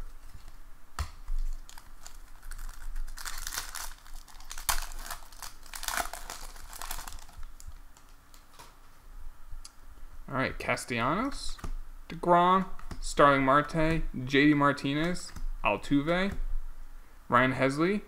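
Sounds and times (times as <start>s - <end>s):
foil wrapper crinkling and tearing: 1.3s - 7.8s.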